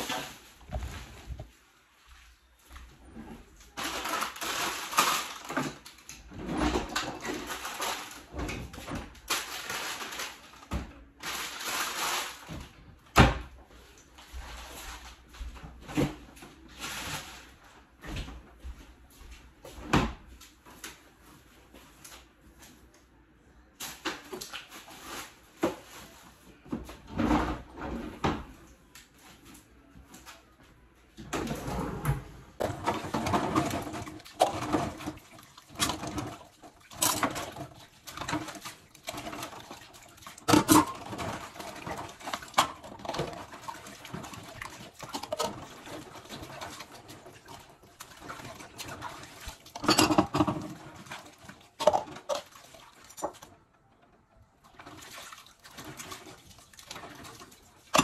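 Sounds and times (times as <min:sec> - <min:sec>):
kitchen items knocking and clattering: 0:00.0 - 0:01.6, 0:03.0 - 0:13.7, 0:14.4 - 0:18.7, 0:23.8 - 0:28.6, 0:31.2 - 0:53.7, 0:55.7 - 0:58.0.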